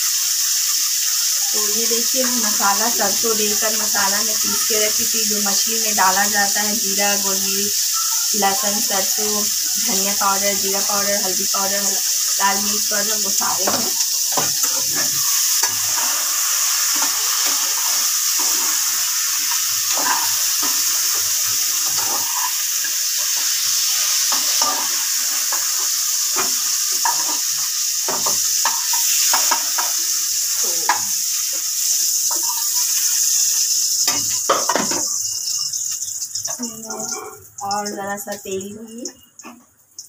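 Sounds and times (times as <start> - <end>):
food sizzling in hot oil: 0.0 - 40.0
metal spatula scraping pan: 16.9 - 22.6.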